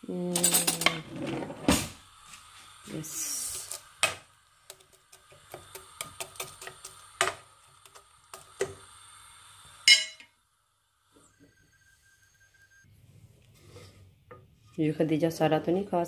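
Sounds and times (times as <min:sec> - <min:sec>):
metal spoon clinking in bowl: 0:09.9 - 0:10.3.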